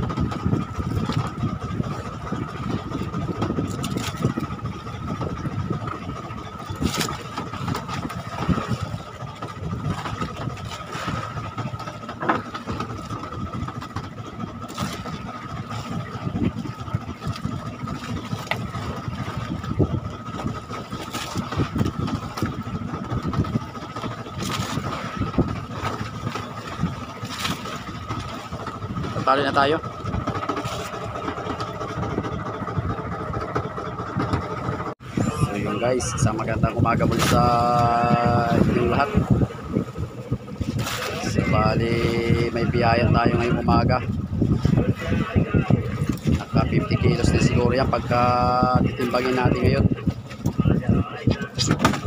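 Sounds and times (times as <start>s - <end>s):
boat engine rumbling: 0.0s - 52.0s
thin steady whine: 30.7s - 37.3s.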